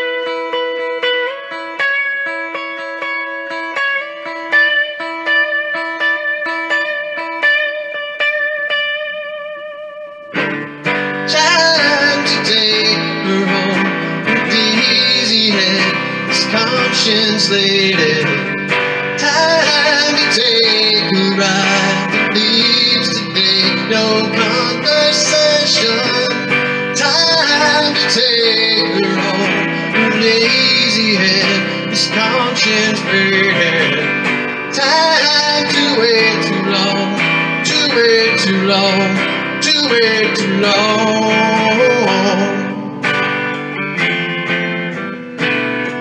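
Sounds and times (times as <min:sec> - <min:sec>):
picked guitar notes: 0:00.0 - 0:46.0
band playing: 0:10.2 - 0:46.0
person singing: 0:10.4 - 0:46.0.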